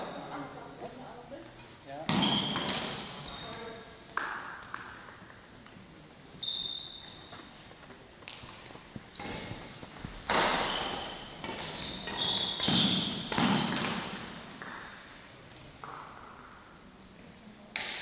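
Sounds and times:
shoes squeaking on court floor: 0:02.0 - 0:03.9, 0:06.2 - 0:16.2
rackets hitting shuttlecock: 0:02.1 - 0:03.2, 0:10.2 - 0:14.9, 0:17.7 - 0:18.0.

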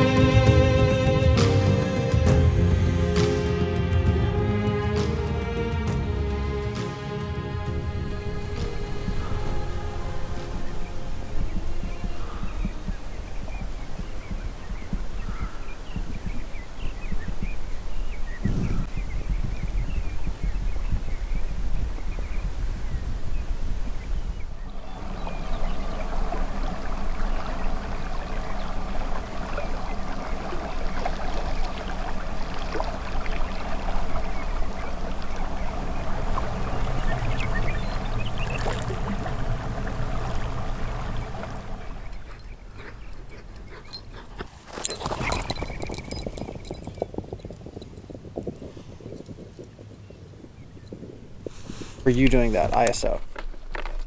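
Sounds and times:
water bubbling and gurgling: 0:24.6 - 0:42.5.

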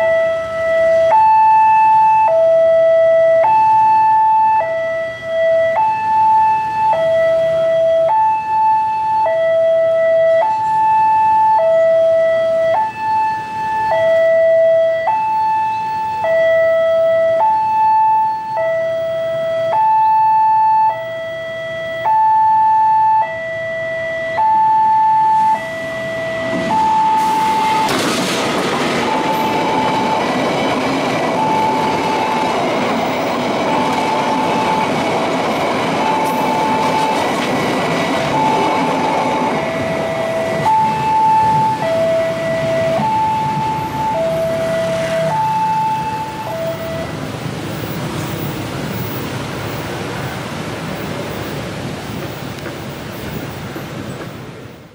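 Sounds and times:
level crossing two-tone alarm: 0:00.0 - 0:28.2, 0:28.9 - 0:47.2
freight train rolling: 0:24.4 - 0:54.9.

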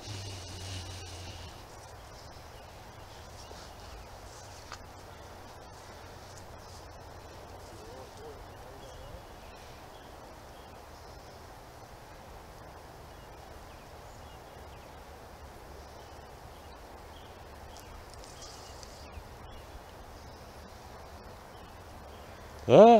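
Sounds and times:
faint bird calls: 0:00.0 - 0:11.5
outdoor background hiss: 0:00.0 - 0:22.9.

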